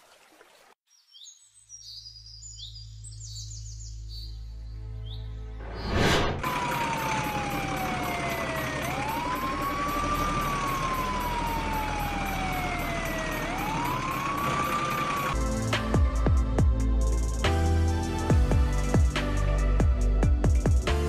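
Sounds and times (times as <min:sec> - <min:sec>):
music: 0:03.0 - 0:06.0, 0:15.4 - 0:21.0
electronic siren wail: 0:06.4 - 0:15.4.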